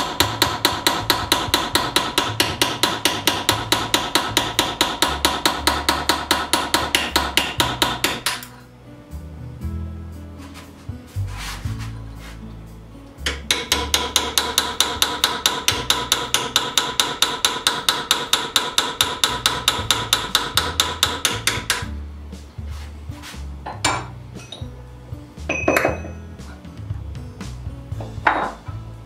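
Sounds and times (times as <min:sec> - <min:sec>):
hammer striking cold chisel on steel: 0:00.0 - 0:08.6, 0:13.2 - 0:21.9, 0:23.7 - 0:24.7, 0:25.5 - 0:26.2, 0:28.0 - 0:28.8.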